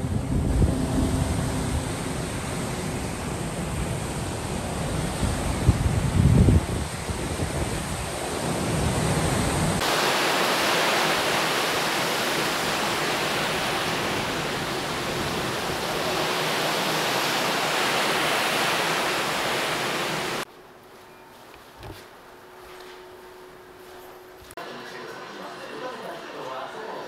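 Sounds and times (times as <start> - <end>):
wind buffeting microphone: 0.0 - 9.8
wind rushing: 0.0 - 20.4
sea: 0.0 - 20.5.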